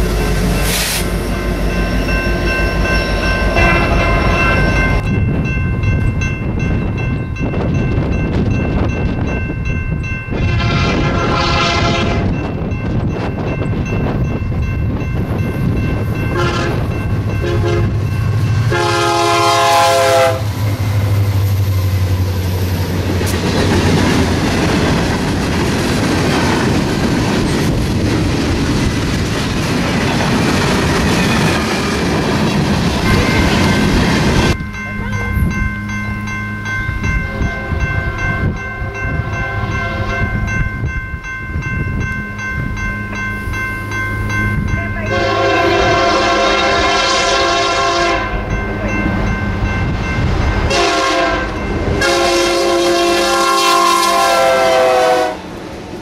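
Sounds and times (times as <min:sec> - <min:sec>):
steady high tones: 0:00.0 - 0:10.5, 0:30.4 - 0:46.8
distant train rumble: 0:00.0 - 0:56.0
train horn: 0:10.4 - 0:12.4, 0:16.3 - 0:18.0, 0:18.6 - 0:20.6, 0:37.2 - 0:38.2, 0:38.8 - 0:40.4, 0:45.0 - 0:48.4, 0:50.6 - 0:55.5
wheels clacking on rail joints: 0:20.6 - 0:35.7.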